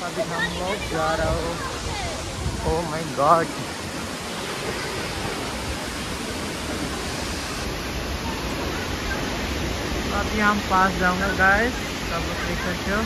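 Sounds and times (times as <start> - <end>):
waterfall rushing: 0.0 - 13.0.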